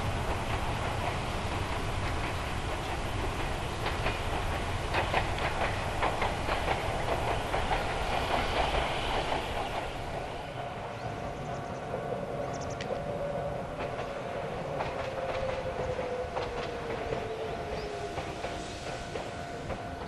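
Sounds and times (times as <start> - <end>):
electric train passing: 0.0 - 20.0
wheels clacking over rail joints: 0.0 - 20.0.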